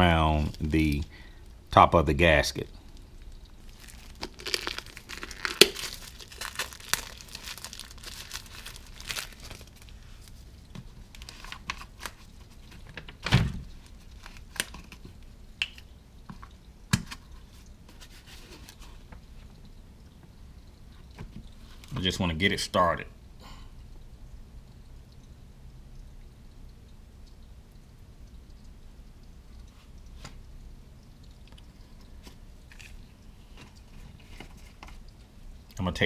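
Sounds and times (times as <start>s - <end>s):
plastic crinkly rustling: 3.6s - 15.2s.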